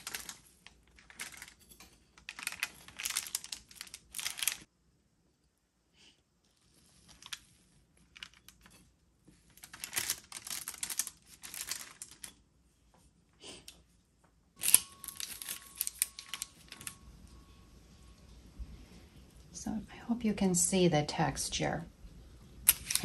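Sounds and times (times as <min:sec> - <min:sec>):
crinkling paper: 0:00.0 - 0:04.7, 0:06.5 - 0:12.4, 0:14.6 - 0:17.4, 0:22.7 - 0:23.0.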